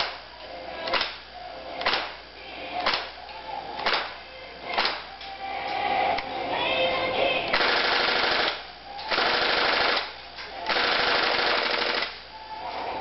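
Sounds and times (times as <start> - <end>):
airsoft gun firing automatic bursts: 7.6 - 10.1, 10.7 - 12.2.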